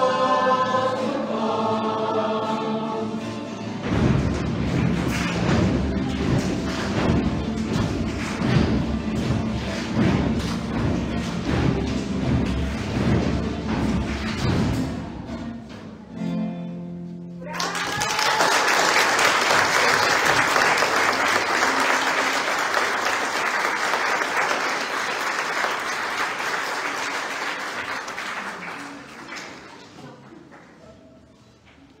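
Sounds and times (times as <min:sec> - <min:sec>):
audience applause: 0:04.6 - 0:11.6, 0:17.5 - 0:30.8.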